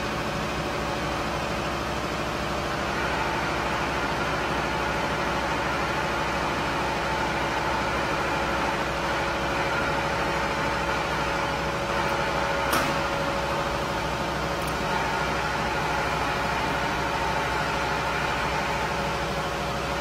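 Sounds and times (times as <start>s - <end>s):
short sharp click: 12.7s - 13.0s.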